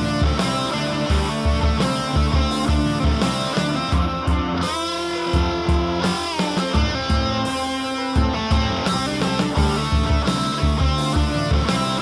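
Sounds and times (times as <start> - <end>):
deep bass hits: 0.0 - 4.7, 8.2 - 12.0
instrumental rock music with guitar: 0.0 - 12.0.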